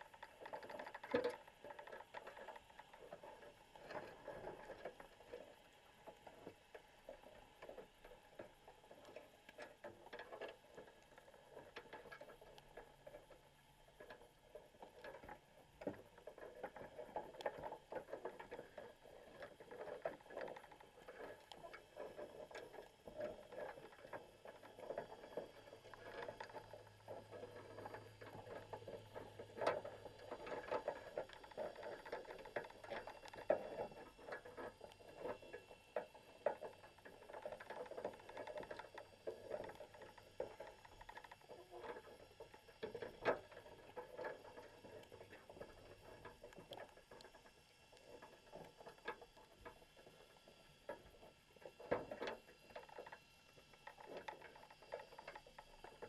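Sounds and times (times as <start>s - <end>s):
underwater crackle of clicks: 0.0s - 56.0s.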